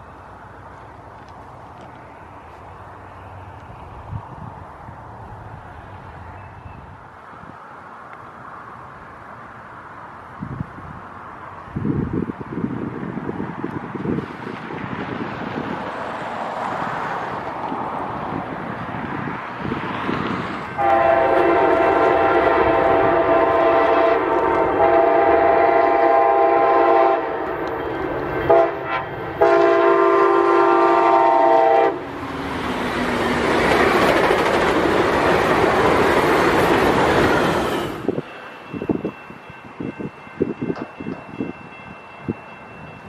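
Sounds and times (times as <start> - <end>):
train rushing past: 0.0 - 43.0
train air horn blasts: 20.8 - 27.5, 28.5 - 32.0.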